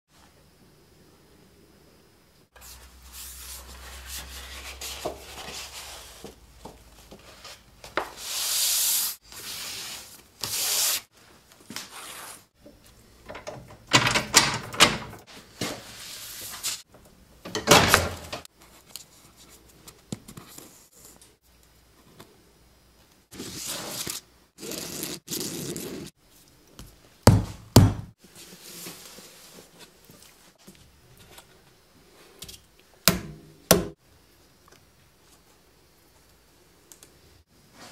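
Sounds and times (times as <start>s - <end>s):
paper and board rubbing and scraping: 23.4s - 26.1s.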